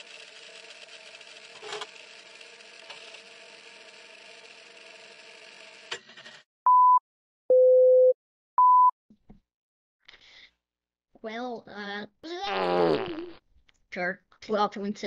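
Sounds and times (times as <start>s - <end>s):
film projector whir: 0.0s - 6.4s.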